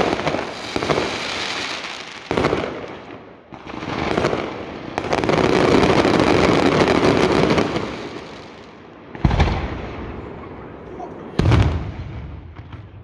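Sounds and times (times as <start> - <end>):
fireworks crackling bangs: 0.0 - 13.0
loud firework bang: 9.2 - 9.8, 11.4 - 12.9.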